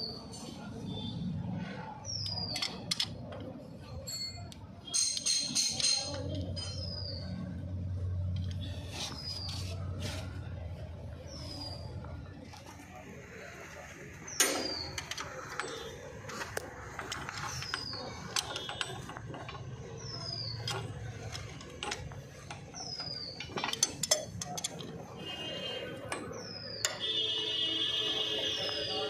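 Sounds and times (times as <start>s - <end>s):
wrench clicking on bolts: 2.2s - 7.0s, 14.4s - 25.2s
sharp metal clank: 14.4s - 15.0s.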